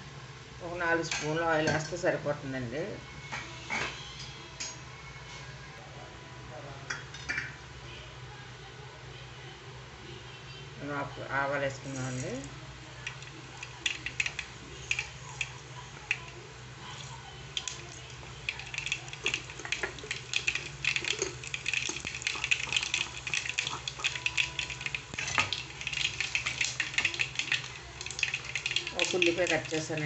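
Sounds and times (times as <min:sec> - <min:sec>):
mustard seeds popping in oil: 0:13.0 - 0:30.0.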